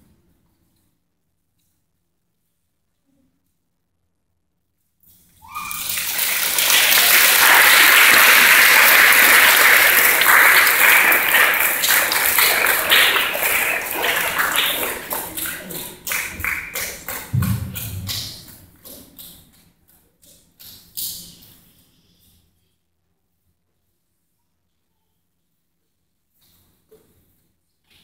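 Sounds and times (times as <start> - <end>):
audience applauding: 5.5 - 17.4.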